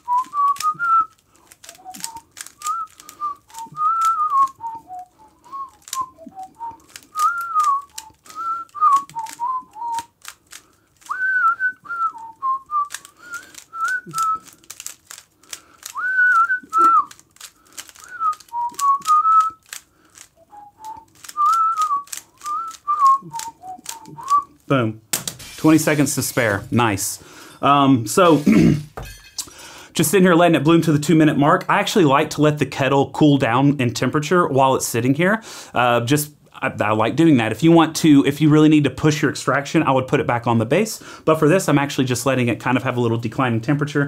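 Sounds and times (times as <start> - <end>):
man whistling a tune: 0.0 - 10.1, 11.1 - 14.5, 15.9 - 17.1, 18.0 - 19.6, 20.4 - 24.6
puzzle cube layers clicking: 0.2 - 5.0, 5.7 - 11.5, 12.8 - 26.8.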